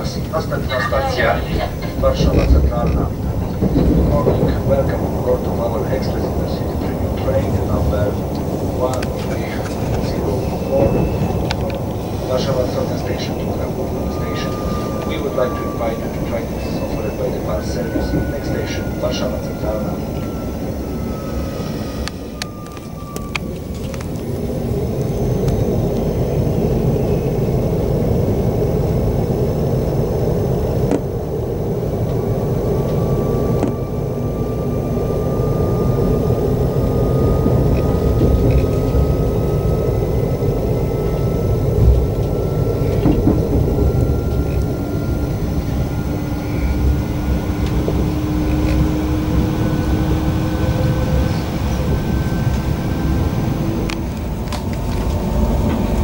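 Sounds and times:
electric train rumble: 0.0s - 56.0s
traction motor whine: 5.6s - 56.0s.

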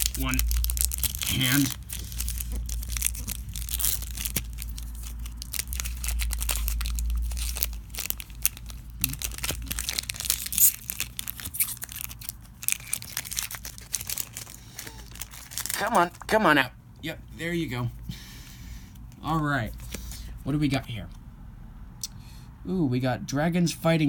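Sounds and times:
low rumble: 0.0s - 10.4s
foil wrapper crinkling and tearing: 0.0s - 16.3s.

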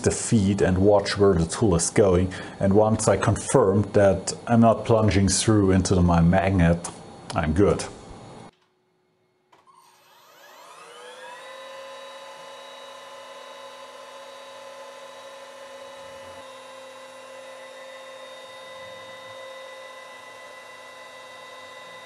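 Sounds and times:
router spindle whine: 9.6s - 22.0s.

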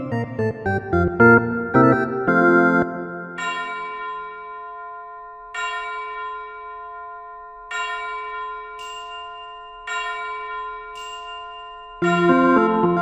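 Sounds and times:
bell-like chime ringing: 3.1s - 13.0s.

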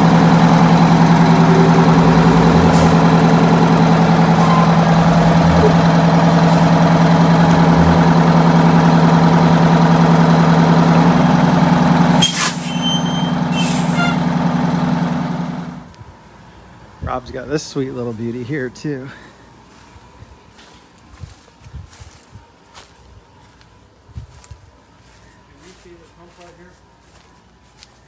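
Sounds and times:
diesel engine idling: 0.0s - 20.6s.

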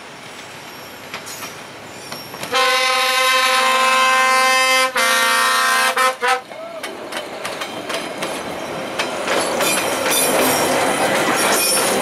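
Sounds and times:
train rumbling: 0.0s - 12.0s
train horn blast: 2.5s - 6.5s.

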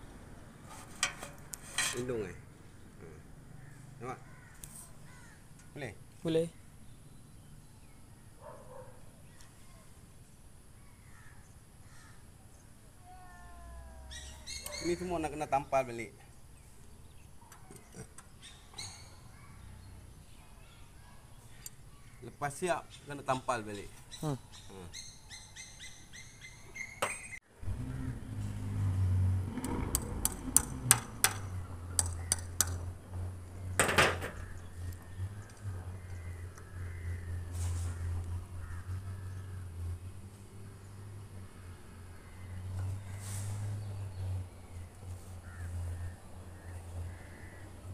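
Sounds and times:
birds chirping: 1.8s - 27.4s, 30.4s - 47.9s
crow cawing: 3.5s - 5.5s, 11.1s - 12.2s, 36.0s - 39.6s, 45.4s - 47.8s.

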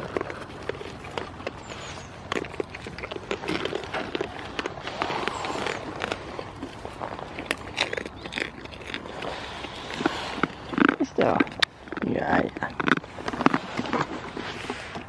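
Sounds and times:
crackling clicks and rustles: 0.0s - 15.0s
goats nibbling treats: 0.0s - 15.0s.

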